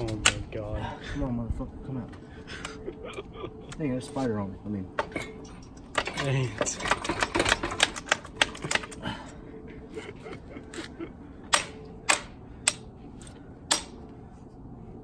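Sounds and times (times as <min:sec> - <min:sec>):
hammer striking metal: 0:11.5 - 0:12.8, 0:13.7 - 0:14.0.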